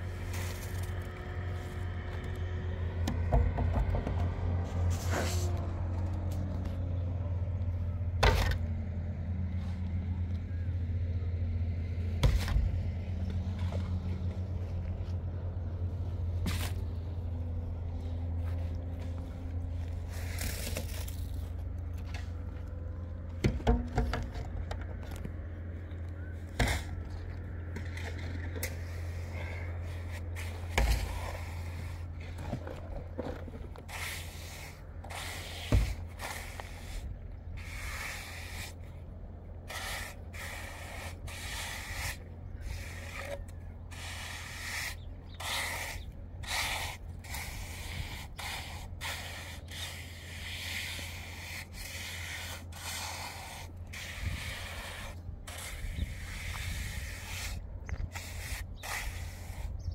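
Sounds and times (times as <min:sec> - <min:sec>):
trowel scraping wet plaster: 0:26.4 - 0:38.9, 0:39.7 - 0:59.9.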